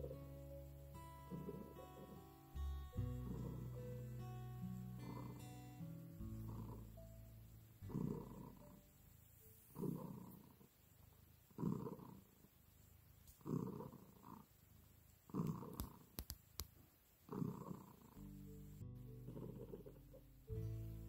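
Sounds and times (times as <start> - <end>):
cat purring: 0.0 - 21.0
faint clicks: 13.2 - 13.5, 15.3 - 16.8.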